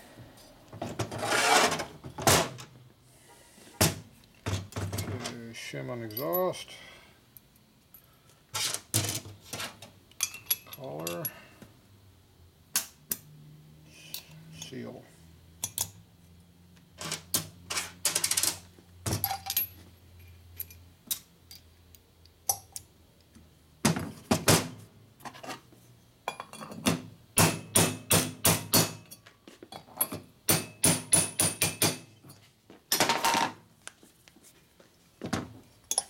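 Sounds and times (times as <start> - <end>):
metal parts clinking: 10.1 - 11.4, 19.2 - 21.7.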